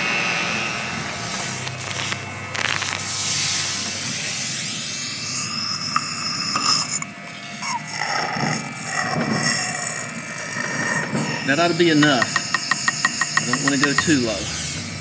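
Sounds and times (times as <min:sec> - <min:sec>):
suction hiss and bubbling: 0:01.1 - 0:06.9.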